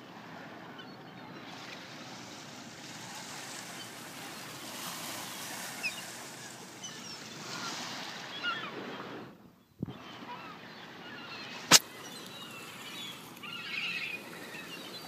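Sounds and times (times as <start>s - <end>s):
surf washing on shore: 1.4s - 15.0s
gulls calling: 2.8s - 15.0s.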